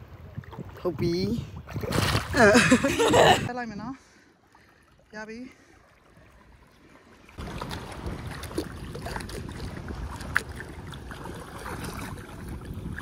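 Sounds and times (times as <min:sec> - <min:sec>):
wind buffeting microphone: 0:00.0 - 0:03.5, 0:07.4 - 0:13.0
moving water: 0:00.0 - 0:13.0.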